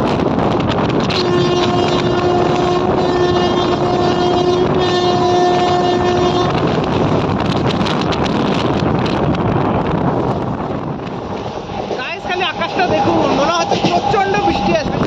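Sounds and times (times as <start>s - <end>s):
train running: 0.0s - 15.0s
wind on microphone: 0.0s - 15.0s
locomotive horn: 1.0s - 6.8s.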